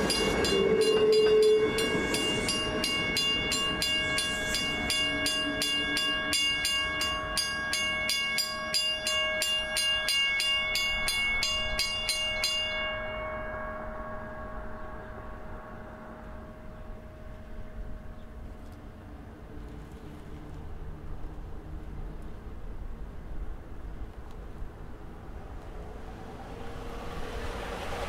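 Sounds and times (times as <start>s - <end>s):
railroad bell ringing: 0.0s - 18.6s
electric train: 0.0s - 28.0s.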